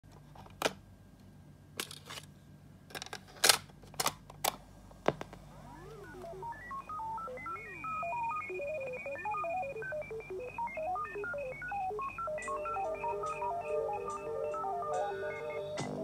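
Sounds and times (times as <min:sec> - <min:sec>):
synth pop song intro: 0:05.7 - 0:16.0.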